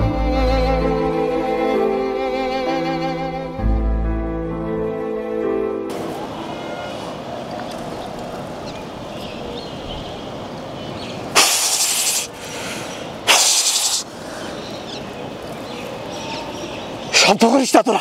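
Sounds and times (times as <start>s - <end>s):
outdoor background noise: 4.1s - 18.0s
loud hissing: 11.3s - 14.7s.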